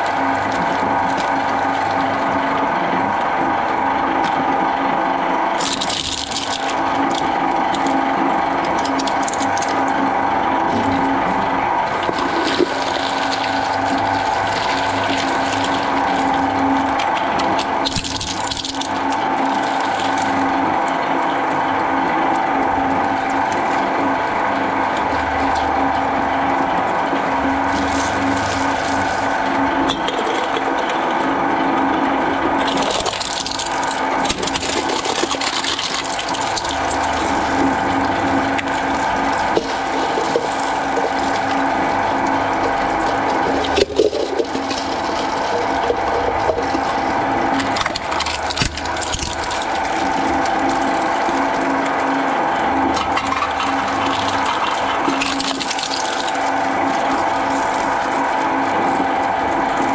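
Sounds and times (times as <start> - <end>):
shredder motor hum: 0.0 - 59.9.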